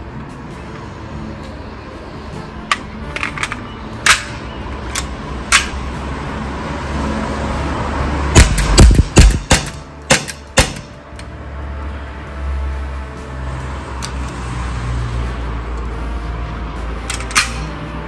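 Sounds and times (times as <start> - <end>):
pistol mechanical clicks and snaps: 2.7 - 5.8, 17.0 - 17.8.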